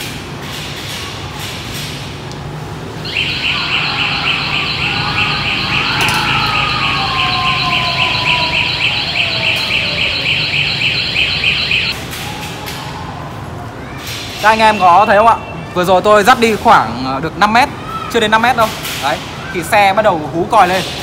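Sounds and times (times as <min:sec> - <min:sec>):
motorcycle alarm siren pulsing: 0:03.0 - 0:12.0.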